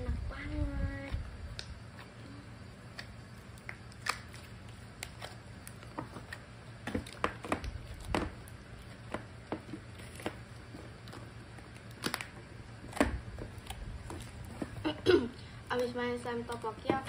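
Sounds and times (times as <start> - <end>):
sticky slime popping and clicking: 2.9 - 10.4, 11.0 - 14.3.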